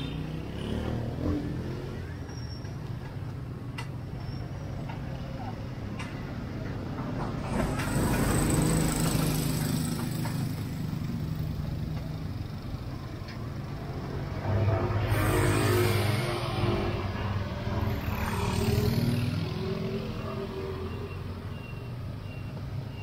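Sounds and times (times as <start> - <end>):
vehicles driving past: 0.0 - 23.0.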